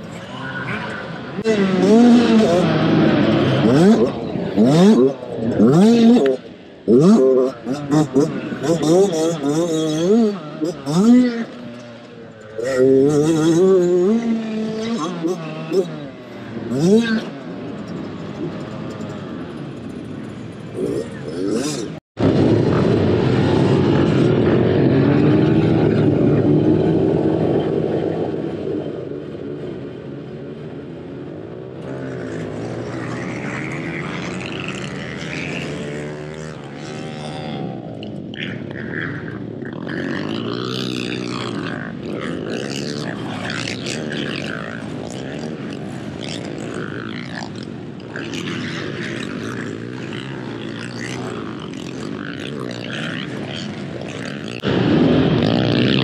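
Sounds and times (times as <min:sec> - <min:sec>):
dirt bike engines revving: 0:00.0 - 0:56.0.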